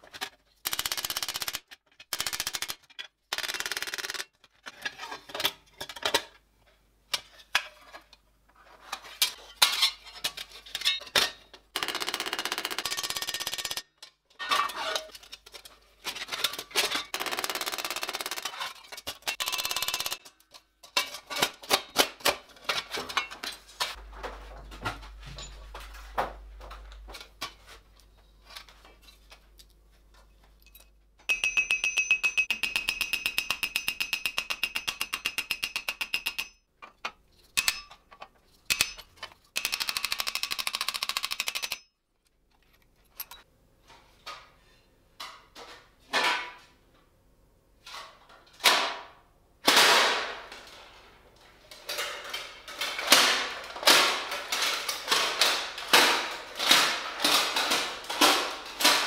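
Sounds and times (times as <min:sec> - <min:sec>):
steel plates knocking and clanking: 0:30.7 - 0:39.4.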